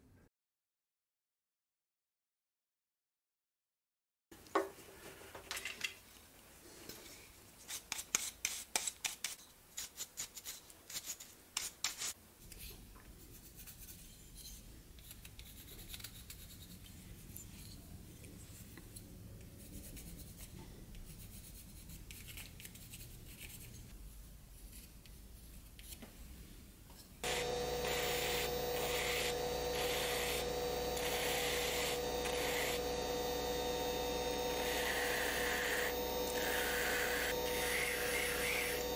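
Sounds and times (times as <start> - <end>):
rotary tool whining: 27.2 - 38.9.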